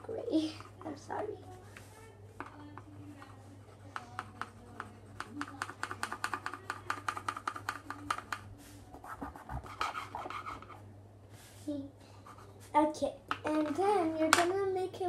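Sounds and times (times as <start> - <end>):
pencil scribbling on paper: 2.8 - 8.3, 8.9 - 10.8.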